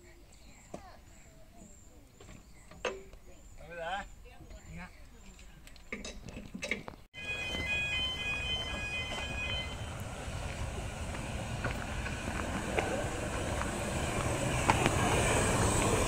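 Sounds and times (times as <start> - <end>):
train wheels rumbling on track: 7.2 - 16.0.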